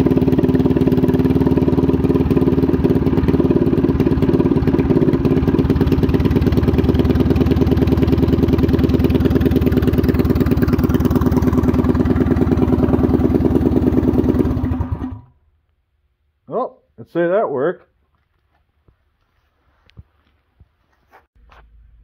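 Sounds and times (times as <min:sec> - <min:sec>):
small engine idling: 0:00.0 - 0:15.6.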